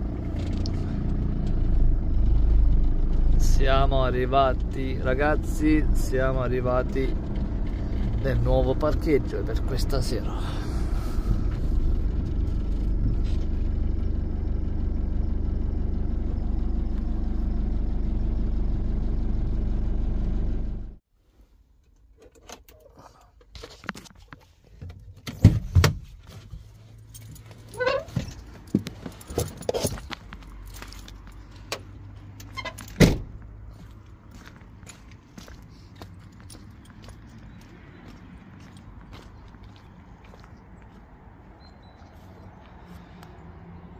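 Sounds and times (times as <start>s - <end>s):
van engine idling: 0.0s - 21.0s
keys jangling: 27.0s - 31.1s.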